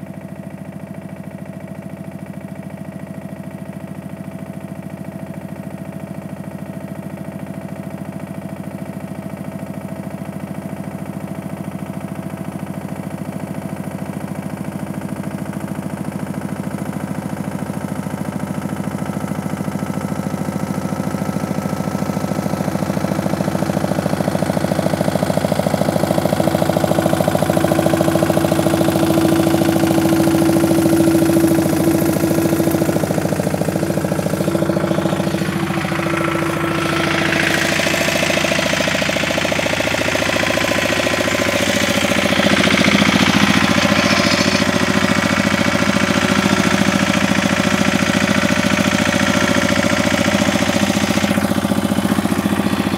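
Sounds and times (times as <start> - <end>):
tractor engine passing by: 12.6 - 52.9.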